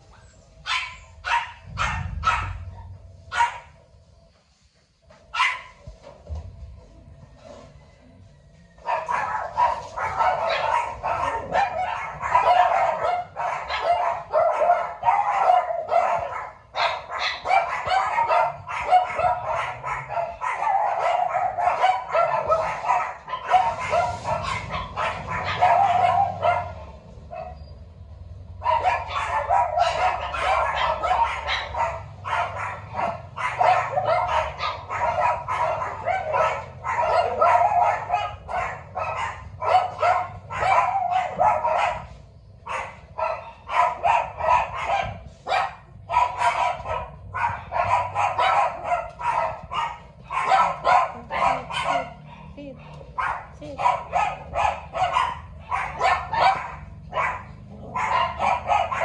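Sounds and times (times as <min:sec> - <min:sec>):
dogs barking and yipping: 0:00.0 - 0:04.3, 0:05.0 - 0:59.0.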